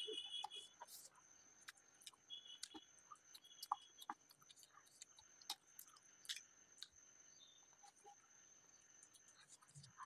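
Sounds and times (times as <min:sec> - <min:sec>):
faint high-pitched whine: 0:00.0 - 0:10.0
wet chewing and lip smacks: 0:00.8 - 0:07.0.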